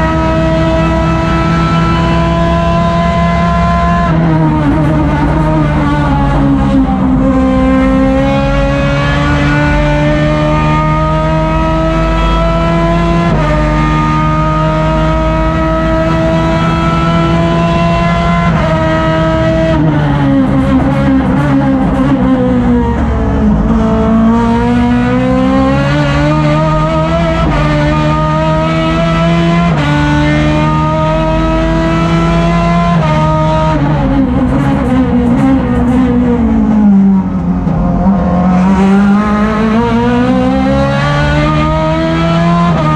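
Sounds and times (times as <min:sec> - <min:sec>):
racing car engine revving: 0:00.0 - 0:42.9.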